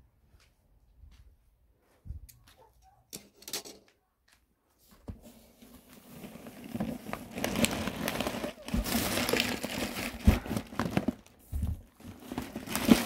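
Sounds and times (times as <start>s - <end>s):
plastic sack crinkling: 5.5s - 13.0s.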